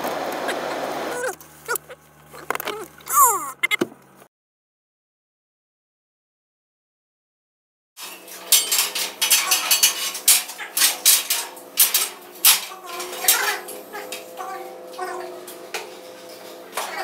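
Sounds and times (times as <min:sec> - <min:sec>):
metallic clanks and knocks: 0:08.0 - 0:17.0
steady hum: 0:08.0 - 0:17.0.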